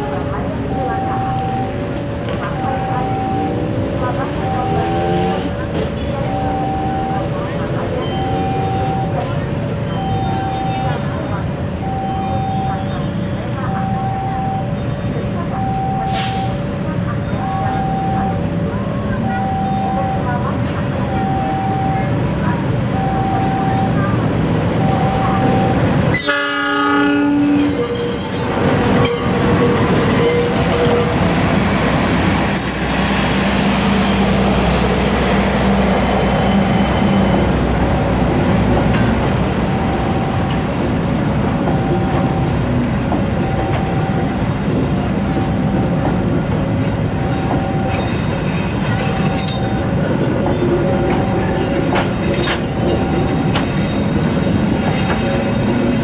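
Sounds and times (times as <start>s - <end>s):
train rumbling past: 0.0s - 56.0s
train horn: 26.1s - 28.4s.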